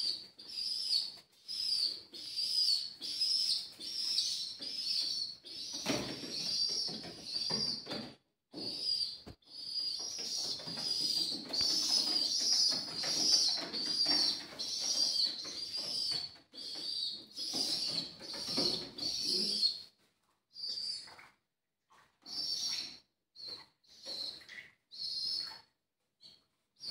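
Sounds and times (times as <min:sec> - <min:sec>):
young pigeons squealing: 0:08.7 - 0:19.8, 0:22.2 - 0:24.4.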